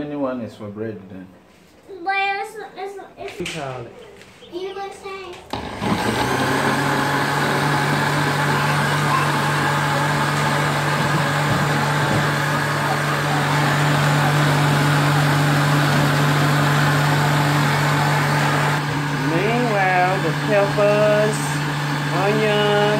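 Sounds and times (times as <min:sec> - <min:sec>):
electric blender running: 0:05.5 - 0:22.9.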